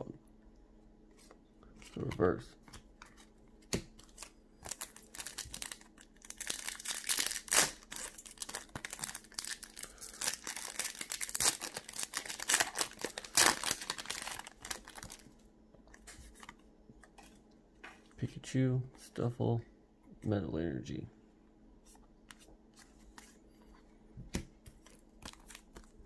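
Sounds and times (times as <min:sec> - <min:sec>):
foil pack tearing and crinkling: 0:04.0 - 0:15.2.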